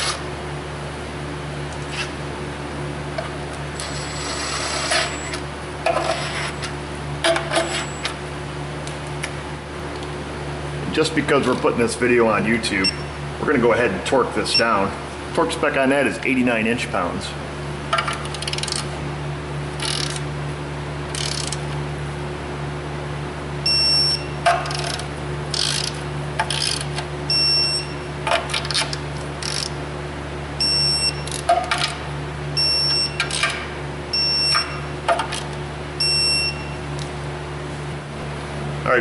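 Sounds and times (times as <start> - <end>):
steady low hum: 0.0 - 39.0
torque wrench ratcheting: 18.2 - 18.9, 19.8 - 20.2, 21.1 - 21.6, 24.6 - 27.0, 28.5 - 29.8.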